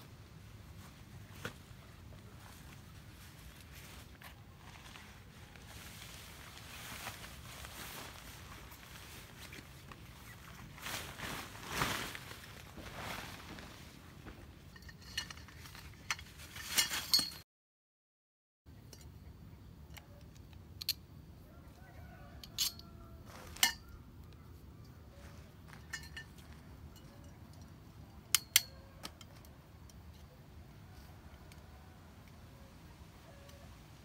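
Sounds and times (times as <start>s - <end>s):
tent fabric rustling: 0.0s - 17.4s
tent poles clinking: 0.6s - 17.4s, 19.8s - 21.2s, 22.3s - 34.0s.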